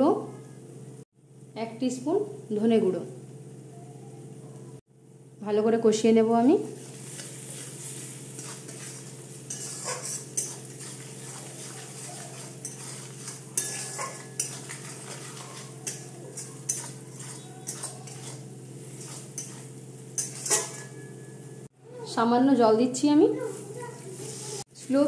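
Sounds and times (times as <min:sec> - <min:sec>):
steady low hum: 0:00.0 - 0:21.7
soft sizzle: 0:00.0 - 0:25.0
metal spatula scraping a pan: 0:06.7 - 0:21.5.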